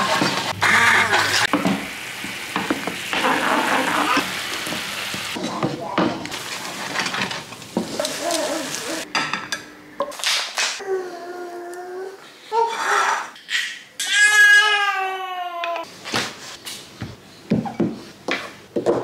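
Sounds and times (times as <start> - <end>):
sauce sizzling in a frying pan: 0.6 - 5.4, 6.3 - 9.1
wooden spoon scraping a pan: 6.4 - 9.0.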